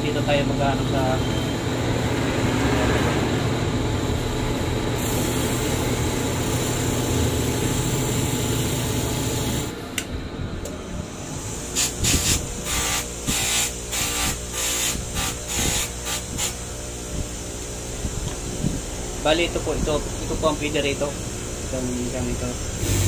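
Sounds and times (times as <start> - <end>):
blade hissing on wheel: 11.1 - 18.8, 20.3 - 23.0
sharpening wheel humming: 11.1 - 19.0
blade strokes on grinder wheel: 11.3 - 16.6.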